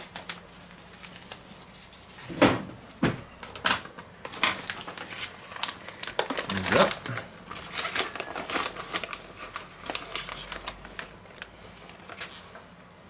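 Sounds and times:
plastic bag crinkling: 3.5s - 12.6s.

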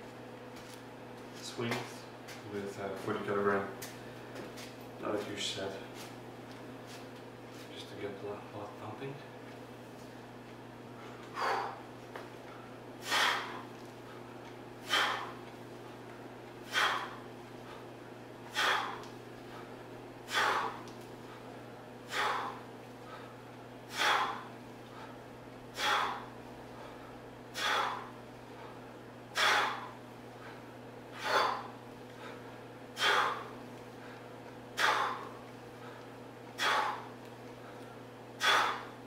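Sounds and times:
man huffing breaths: 10.8s - 39.0s.

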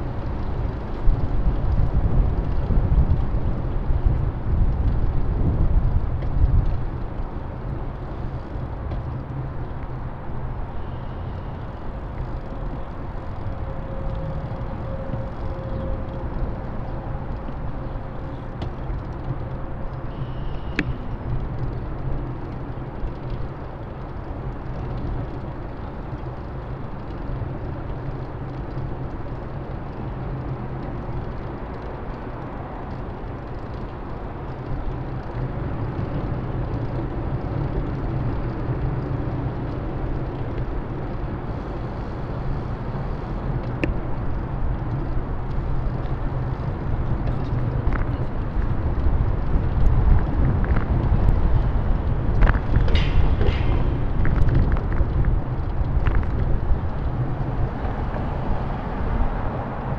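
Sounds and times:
heavy low rumble: 0.0s - 27.7s, 35.4s - 59.9s
city street traffic: 0.0s - 59.9s.

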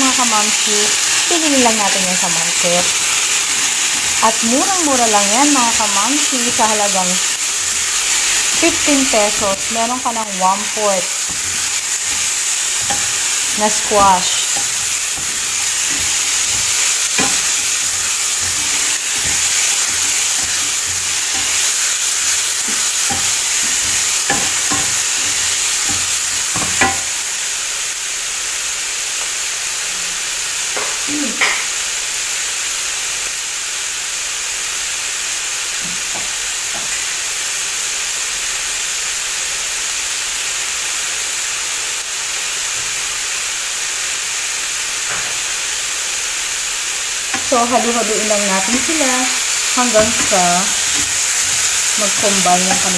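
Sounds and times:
vegetables sizzling in a frying pan: 0.0s - 52.9s
spatula scraping a pan: 10.6s - 27.2s.

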